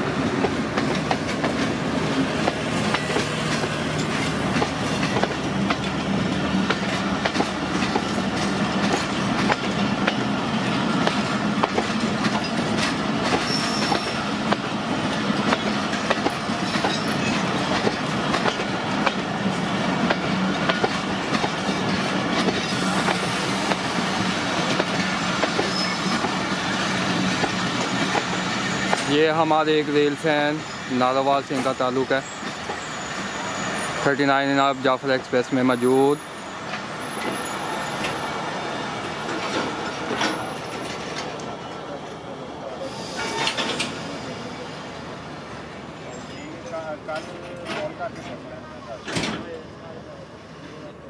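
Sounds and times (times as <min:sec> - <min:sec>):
train rumbling past: 0:00.0 - 0:51.0
high wheel squeals: 0:13.4 - 0:14.4, 0:25.6 - 0:26.9, 0:30.3 - 0:35.0, 0:35.7 - 0:38.8, 0:46.0 - 0:46.8
wheels clicking over rail joints: 0:39.3 - 0:41.5.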